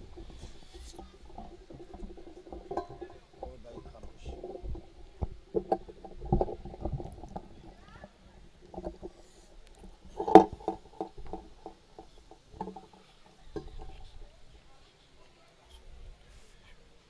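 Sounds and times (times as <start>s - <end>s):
soft knocks and rustling: 0.0s - 14.5s
faint muffled voices: 13.0s - 17.0s.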